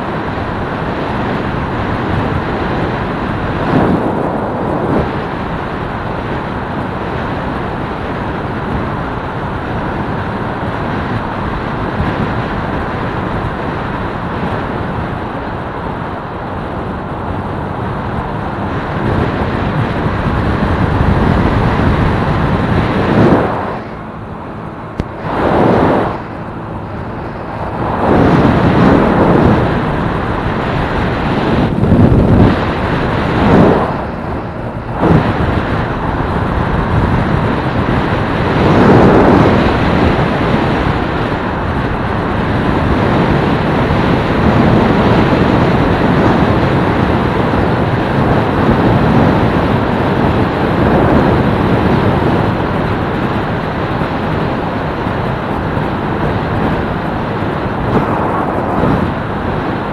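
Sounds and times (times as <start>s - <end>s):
motorcycle engine running: 0.0s - 47.4s
wind on microphone: 0.0s - 59.9s.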